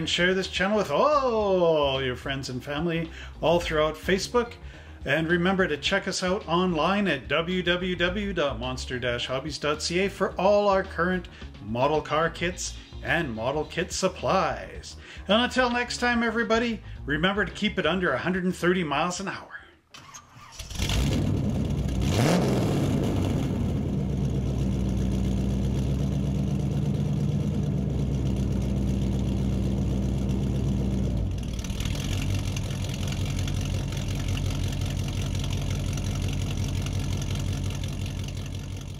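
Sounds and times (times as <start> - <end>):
car engine starting and revving: 20.0 - 38.9.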